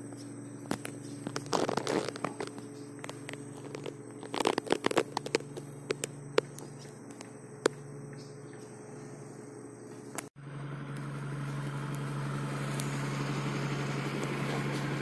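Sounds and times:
footsteps on dry twigs: 0.0 - 8.9.

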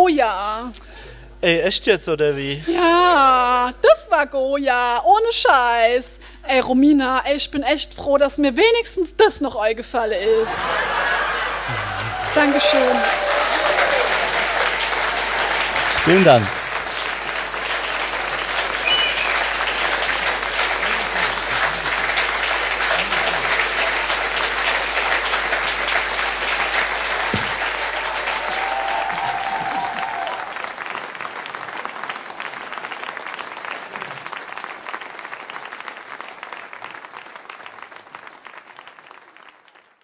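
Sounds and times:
audience applauding: 10.4 - 40.0.

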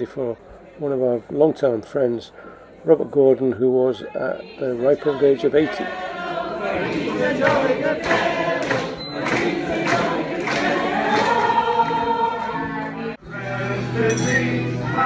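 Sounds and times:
party guests singing together: 4.6 - 15.0.

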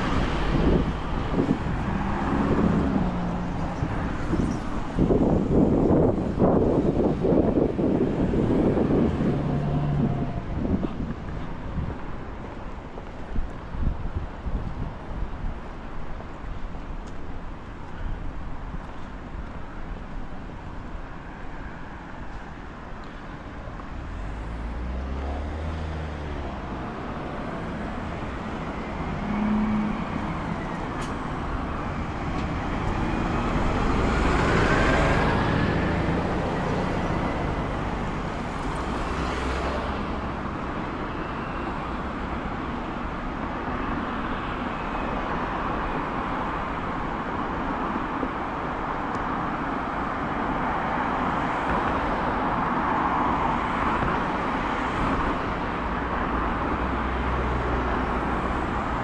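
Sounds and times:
road traffic: 0.0 - 59.0
vehicle passing close: 24.2 - 40.4.

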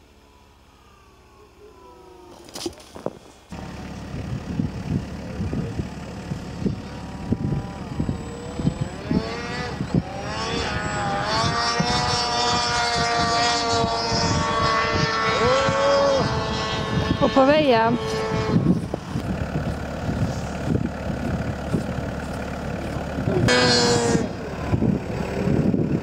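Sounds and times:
wind rumbling on microphone: 2.7 - 26.0
model airplane motor whining: 6.4 - 22.0.

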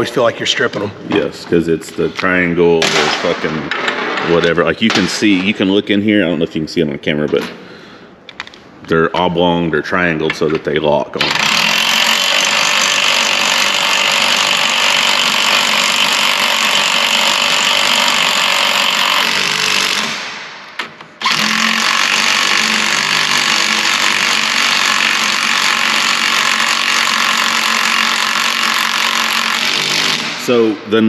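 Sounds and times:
cordless impact wrench: 11.2 - 30.5.

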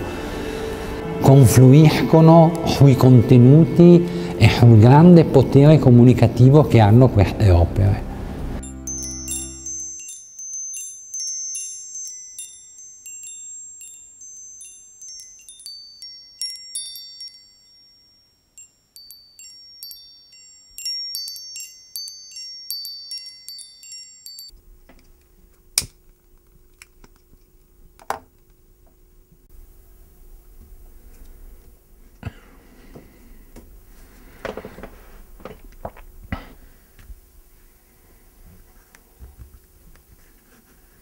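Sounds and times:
high metallic chimes ringing: 8.6 - 24.6.

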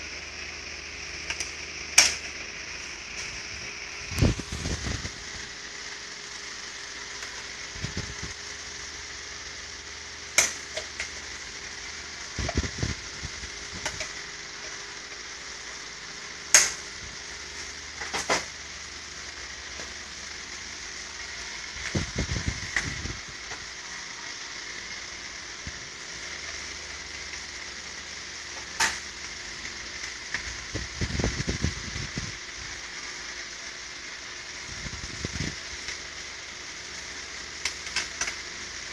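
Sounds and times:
steady hiss: 0.0 - 38.9.

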